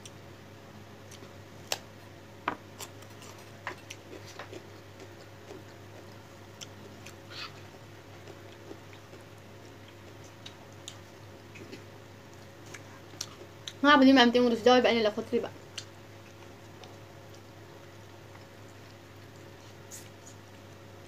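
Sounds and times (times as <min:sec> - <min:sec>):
low steady hum: 0:00.0 - 0:21.0
chewing food: 0:02.8 - 0:13.8, 0:15.7 - 0:20.8.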